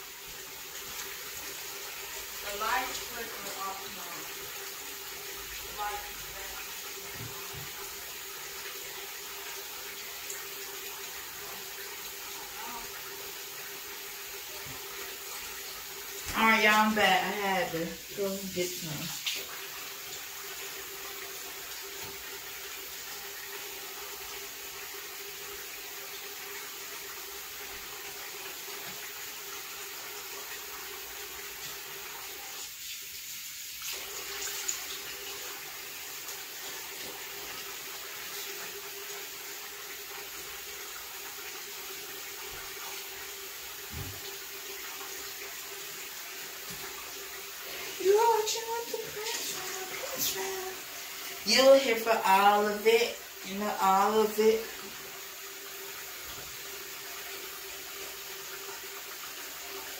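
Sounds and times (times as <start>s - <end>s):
tap running into sink: 7.1s - 7.9s, 43.8s - 44.4s.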